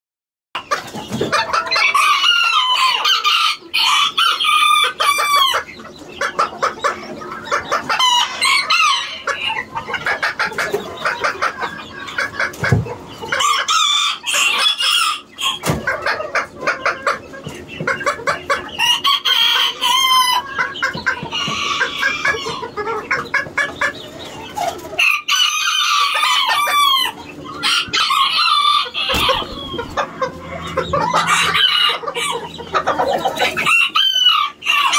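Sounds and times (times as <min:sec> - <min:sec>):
chickens clucking: 0:00.6 - 0:34.9
roosters crowing: 0:01.2 - 0:05.8, 0:07.4 - 0:10.0, 0:13.2 - 0:16.6, 0:18.1 - 0:23.3, 0:24.5 - 0:34.9.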